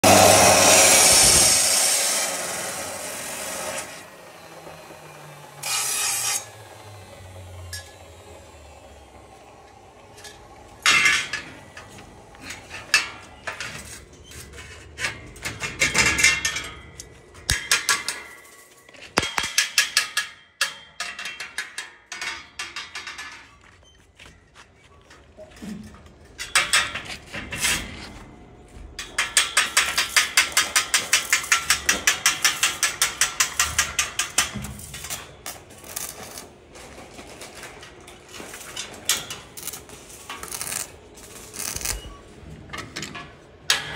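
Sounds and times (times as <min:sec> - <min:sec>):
steel pieces knocking and scraping: 0:10.2 - 0:23.7, 0:25.6 - 0:28.0, 0:29.0 - 0:43.9.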